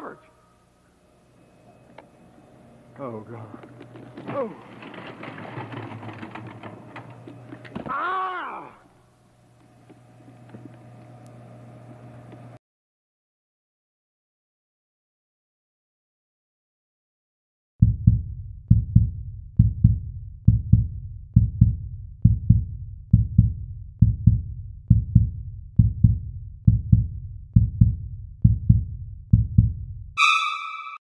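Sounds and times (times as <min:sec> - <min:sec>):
heartbeat thumps: 0:17.8 - 0:30.2
short high tone: 0:30.2 - 0:31.0.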